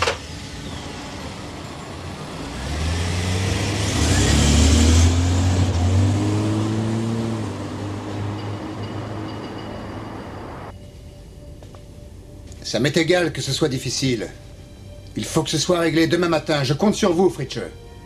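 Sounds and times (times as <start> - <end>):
car driving past: 0.2 - 10.7.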